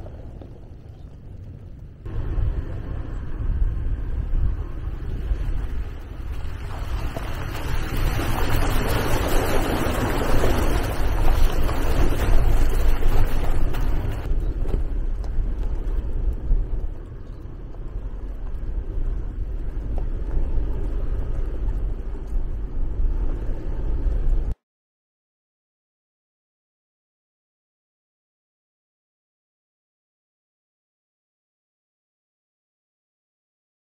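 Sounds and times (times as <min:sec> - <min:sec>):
vehicle rumbling on dirt road: 0:00.0 - 0:24.6
wind buffeting microphone: 0:00.0 - 0:24.6.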